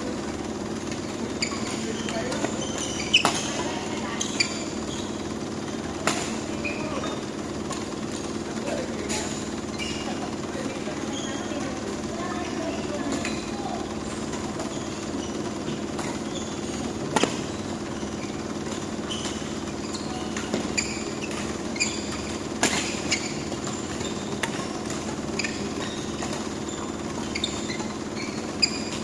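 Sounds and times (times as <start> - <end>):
shoes squeaking on court: 0.0 - 29.0
ventilation fan hum: 0.0 - 29.0
racket hitting shuttlecock: 0.8 - 6.8, 13.0 - 29.0.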